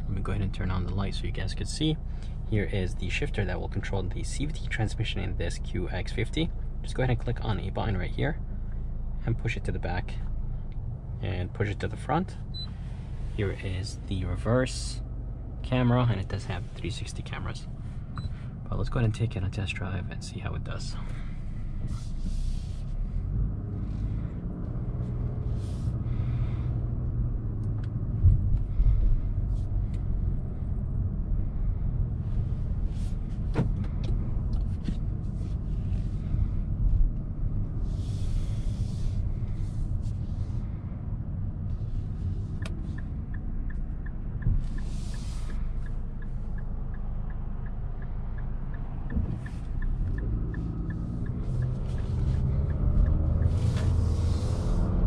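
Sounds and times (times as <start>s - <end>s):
road and engine rumble in car cabin: 0.0s - 55.0s
light regular ticking: 42.2s - 53.6s.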